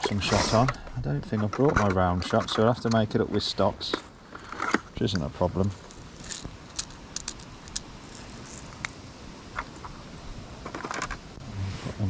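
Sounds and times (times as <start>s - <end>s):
fishing tackle clicking: 6.2s - 9.0s.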